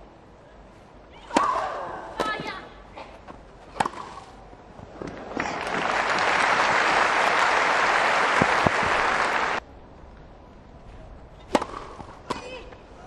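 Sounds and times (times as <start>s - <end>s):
crowd applauding: 5.2s - 9.6s.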